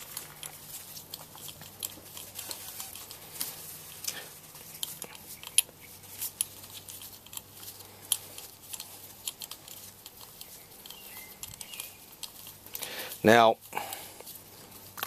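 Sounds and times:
metallic wrench clicks and scrapes: 0.0s - 12.8s.

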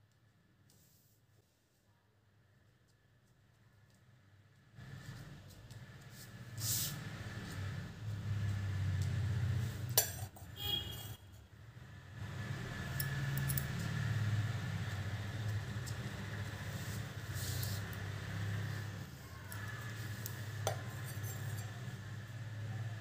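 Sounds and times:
metal fork clinking: 10.0s - 10.5s, 12.9s - 14.0s, 20.6s - 21.9s.

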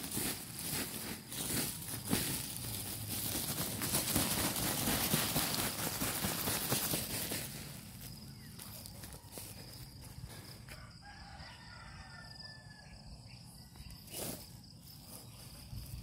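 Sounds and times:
plastic bag crinkling: 0.0s - 9.1s
dry straw rustling and crackling: 0.0s - 10.5s.

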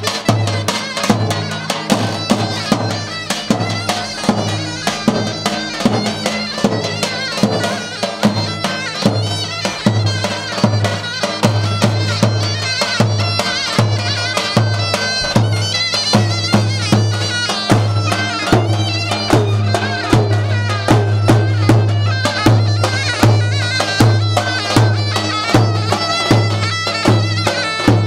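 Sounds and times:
deep davul drum beat: 0.0s - 28.0s
reedy zurna melody: 0.0s - 28.0s.

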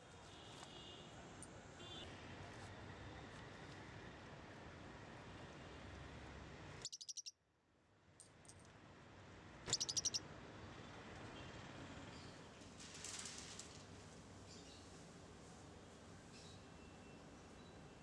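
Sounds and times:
parakeet chirping: 6.8s - 7.3s, 9.7s - 10.2s.

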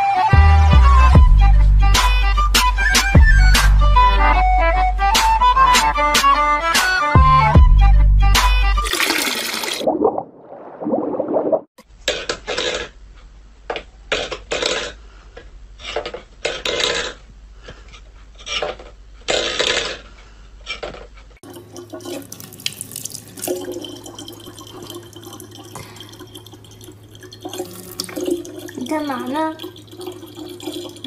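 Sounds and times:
water trickling into plastic bottle: 8.9s - 10.0s, 21.4s - 31.0s.

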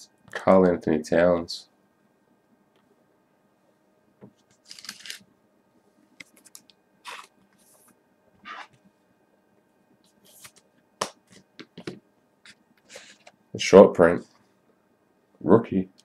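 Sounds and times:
cards rustling and sliding: 4.6s - 5.2s, 6.2s - 8.8s, 10.1s - 12.0s, 12.9s - 13.4s.

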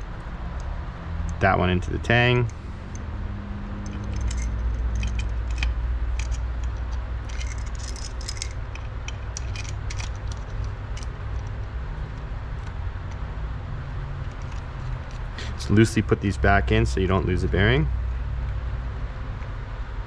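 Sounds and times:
metal engine parts clinking: 3.7s - 16.0s.

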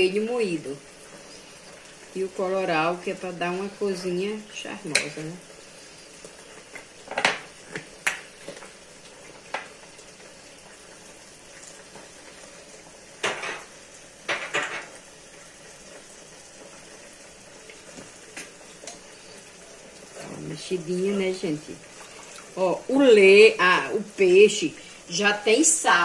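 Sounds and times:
faint steady hiss: 0.0s - 26.0s.

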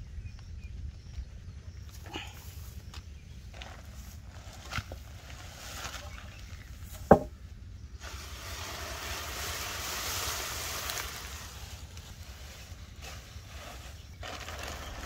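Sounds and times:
sharp knock: 7.1s - 7.3s.

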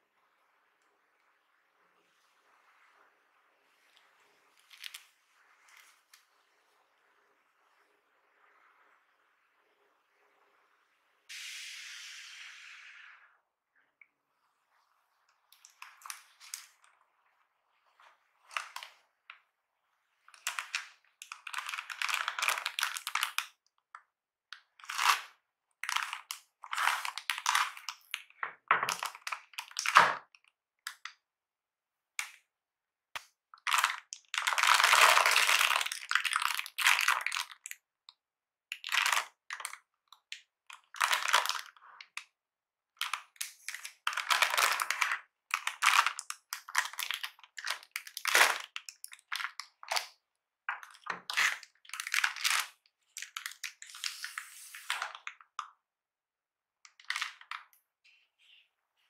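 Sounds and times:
plastic film crinkling: 4.6s - 5.1s, 20.4s - 23.5s, 24.8s - 30.2s, 33.6s - 37.8s, 38.8s - 39.8s, 40.7s - 42.2s, 43.0s - 50.1s, 50.7s - 55.6s.

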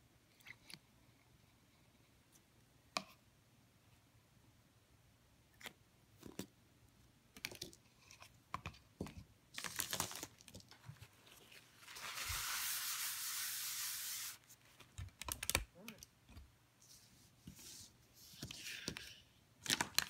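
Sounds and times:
paper towel rubbing on paper: 11.8s - 14.4s.

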